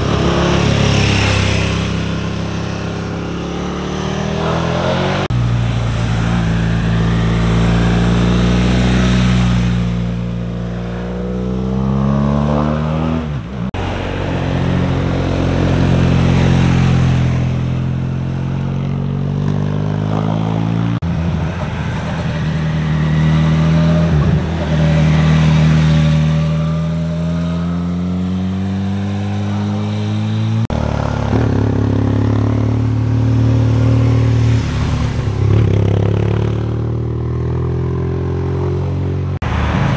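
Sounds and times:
motorcycle engines accelerating: 0.0 - 39.9.

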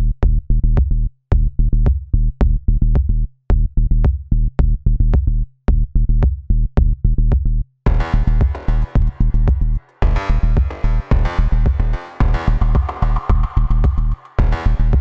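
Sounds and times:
electronic music with steady beat: 7.9 - 15.0.

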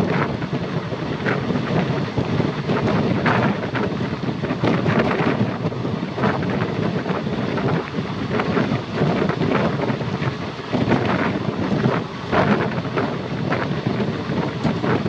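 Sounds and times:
moving train running: 0.0 - 15.0
wind rushing over microphone: 0.0 - 15.0.

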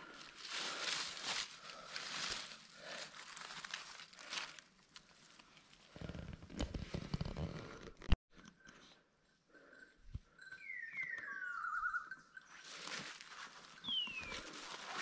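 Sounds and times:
leaves crackling underfoot: 0.0 - 5.8, 12.6 - 15.0.

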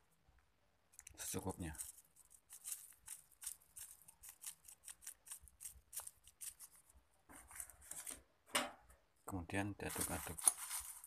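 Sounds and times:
plastic sachet crinkling: 1.0 - 7.0, 9.8 - 11.0.

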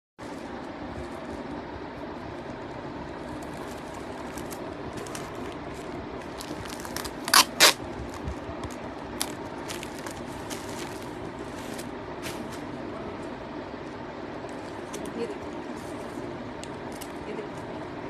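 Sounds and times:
steady background hum: 0.2 - 18.0
handling noise: 0.3 - 12.8.

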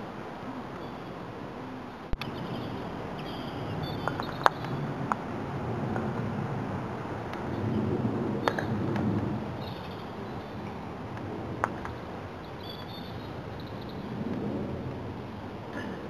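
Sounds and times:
steady low rumble: 0.0 - 16.0
birds chirping faintly: 0.6 - 5.0, 9.5 - 10.9, 11.8 - 14.2.

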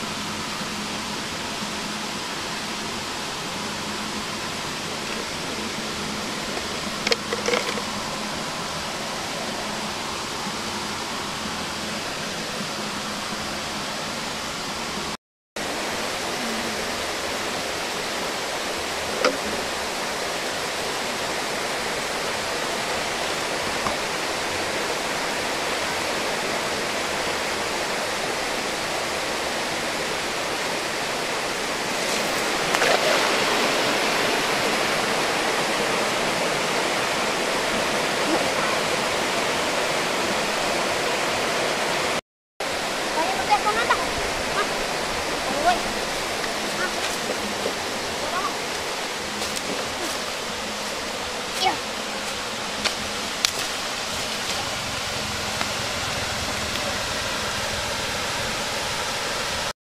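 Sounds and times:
outdoor background hiss: 0.0 - 59.7.

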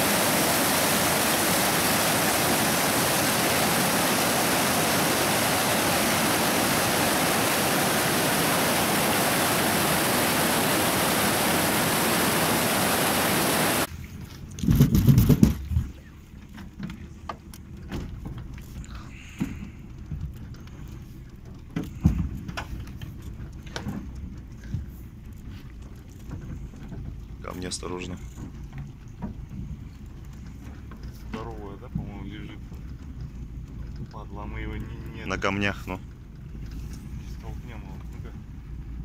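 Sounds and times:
mountain stream rushing over boulders: 0.0 - 13.9
boat knocking against floating logs: 14.7 - 36.8.

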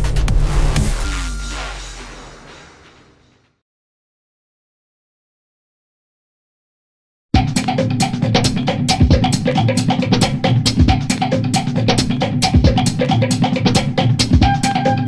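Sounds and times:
deep bass drum: 0.0 - 2.2, 7.4 - 13.1
drum kit beat: 0.0 - 2.7, 7.4 - 15.0.

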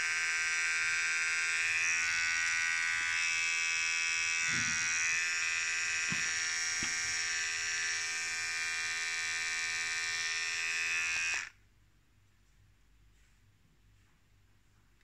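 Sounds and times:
hair clipper buzzing: 0.0 - 11.6.

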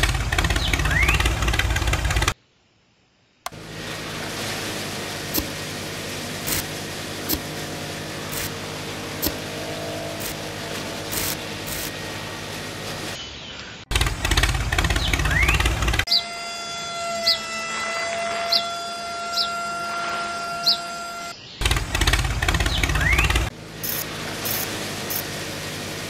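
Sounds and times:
loud rattling: 0.0 - 2.4, 3.5 - 13.2, 13.9 - 16.1, 21.6 - 26.0
small electric motor humming: 3.5 - 13.2, 14.3 - 26.0
sharp clicks: 13.9 - 16.1.

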